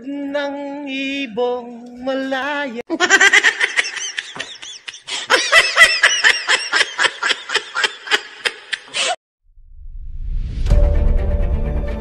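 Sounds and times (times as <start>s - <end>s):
man laughing hard: 2.9s - 9.2s.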